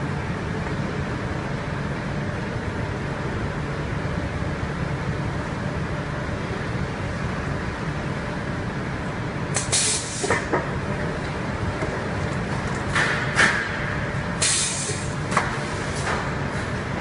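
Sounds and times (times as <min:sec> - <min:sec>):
conveyor line rumble: 0:00.0 - 0:17.0
burst of hiss: 0:09.6 - 0:10.3, 0:14.4 - 0:15.1.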